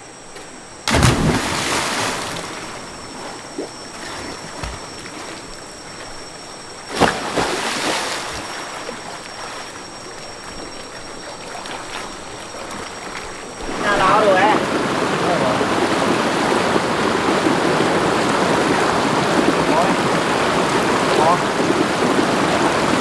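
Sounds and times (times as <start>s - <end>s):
rushing river water: 7.1s - 23.0s.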